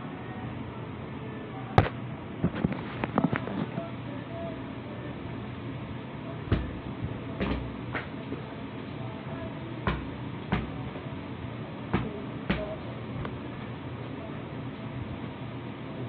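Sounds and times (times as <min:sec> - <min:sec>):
soccer ball thumps on feet: 0:06.5 - 0:06.8, 0:09.9 - 0:10.8, 0:12.0 - 0:12.8.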